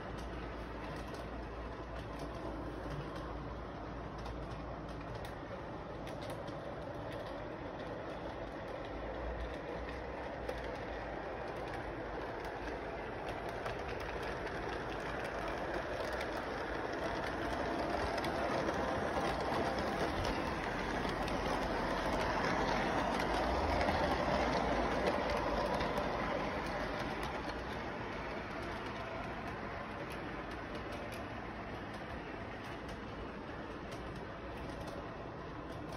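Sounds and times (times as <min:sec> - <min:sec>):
model train rolling on track: 0:00.0 - 0:35.9.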